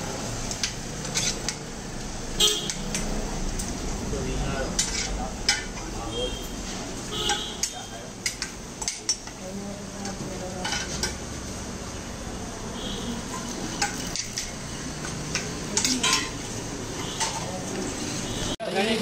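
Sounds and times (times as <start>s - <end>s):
metal ladle clinking on plates: 4.8s - 5.9s, 7.2s - 9.4s, 10.0s - 11.2s, 13.3s - 17.9s.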